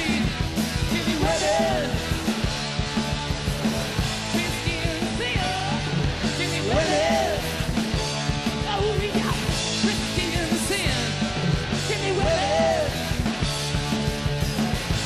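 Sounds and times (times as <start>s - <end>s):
person singing: 0.0s - 2.1s, 4.3s - 7.6s, 11.8s - 13.1s
rock band playing: 0.0s - 15.0s.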